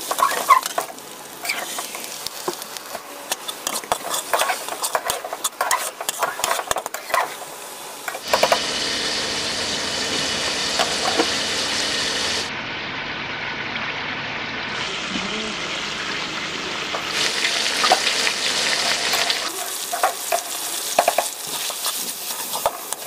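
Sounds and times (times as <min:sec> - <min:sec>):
spatula scraping metal pot: 0:00.0 - 0:02.1, 0:03.3 - 0:07.5.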